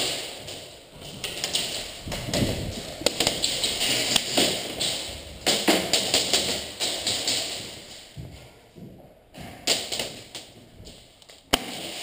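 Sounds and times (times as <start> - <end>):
footsteps on concrete: 0.0 - 11.5.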